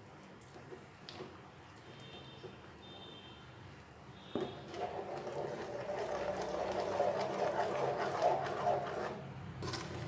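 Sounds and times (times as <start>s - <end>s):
metal spatula scraping a pan: 4.5s - 10.0s.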